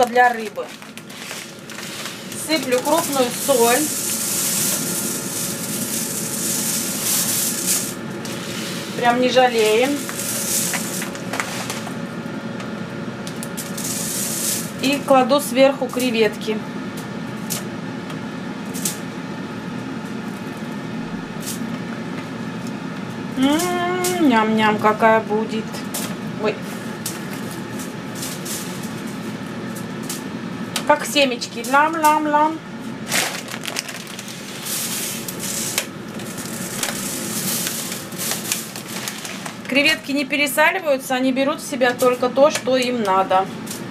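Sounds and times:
salt pattering on foil: 0.0s - 11.9s, 13.4s - 15.1s, 33.0s - 40.1s
appliance fan whirring: 0.0s - 43.9s.

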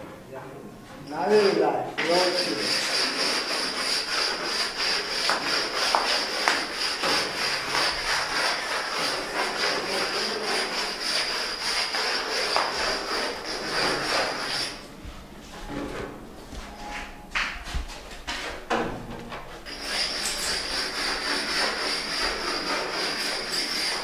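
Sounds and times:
pad sanding concrete: 2.0s - 14.8s, 19.7s - 24.0s.

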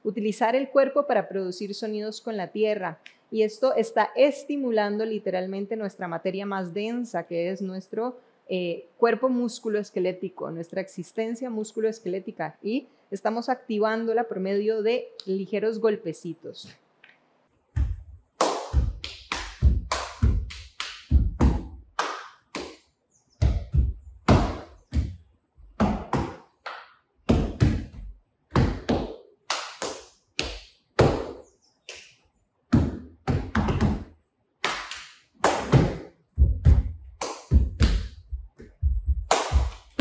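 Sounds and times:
feet stomping on mat: 17.8s - 21.8s, 23.4s - 25.2s, 25.8s - 26.4s, 27.3s - 29.1s, 30.4s - 31.4s, 32.7s - 34.1s, 35.5s - 40.0s
hands slapping on mat: 17.8s - 22.8s, 23.4s - 25.2s, 25.8s - 40.0s.

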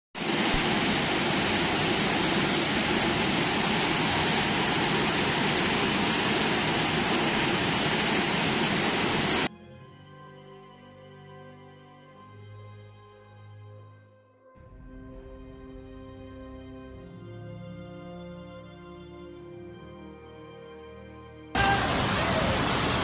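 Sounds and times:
floodwater rushing: 0.2s - 9.5s, 21.6s - 23.0s.

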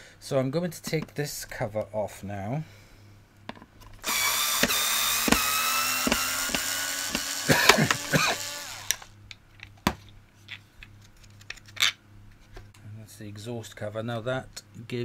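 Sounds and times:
screwdriver bit knocking on screws: 4.0s - 9.0s
electric screwdriver motor whining: 4.0s - 9.1s.

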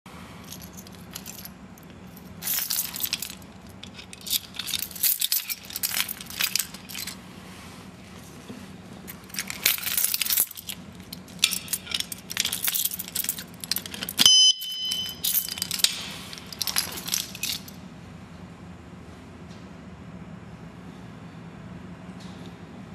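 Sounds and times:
metal lock clicking and rattling: 9.2s - 17.7s
short electronic beep: 14.2s - 15.1s.

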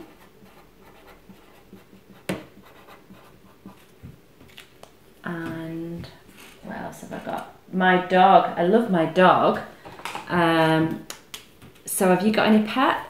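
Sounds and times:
pen scratching on paper: 0.0s - 3.8s.

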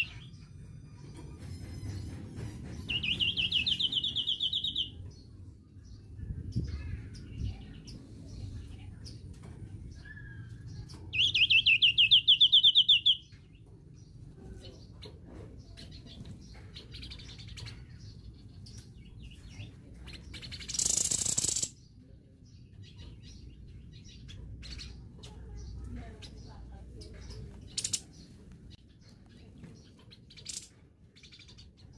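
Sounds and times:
songbird fast trill: 20.6s - 21.8s.

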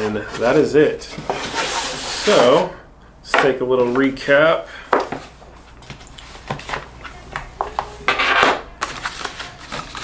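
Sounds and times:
paper rustle: 5.8s - 10.0s.

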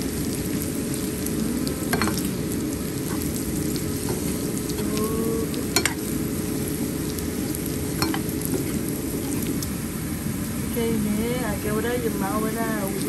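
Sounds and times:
meat sizzling in oil: 0.0s - 13.0s
spatula clinking against pan: 8.0s - 8.2s.

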